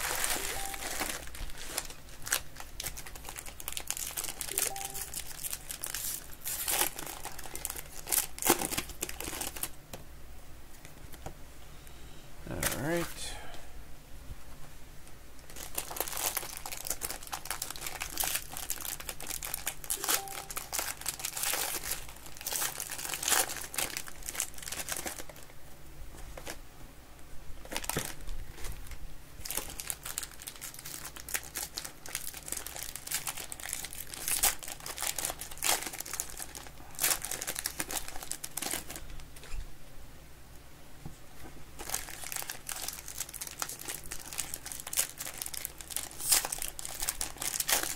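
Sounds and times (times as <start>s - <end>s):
plastic wrappers crinkling and tearing: 0.0s - 9.8s, 15.4s - 25.5s, 26.2s - 26.6s, 27.6s - 39.6s, 41.8s - 47.9s.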